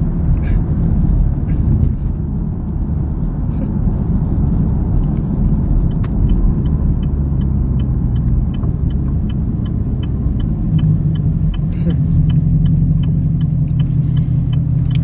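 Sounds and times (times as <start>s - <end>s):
car interior road rumble: 0.0s - 15.0s
light regular ticking: 5.0s - 15.0s.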